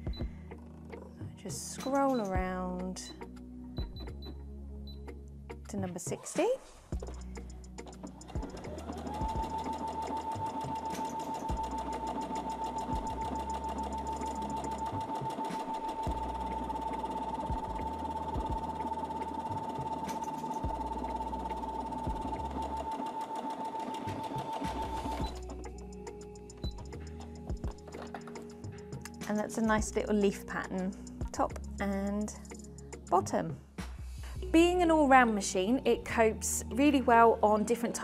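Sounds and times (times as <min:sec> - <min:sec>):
sewing machine motor whine: 0:08.2 - 0:25.8.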